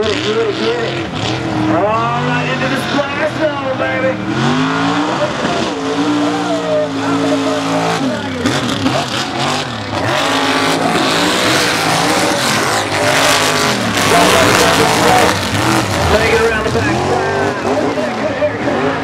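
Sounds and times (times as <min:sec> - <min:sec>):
truck engine revving: 0:00.0 - 0:19.0
loud rushing noise: 0:07.7 - 0:19.0.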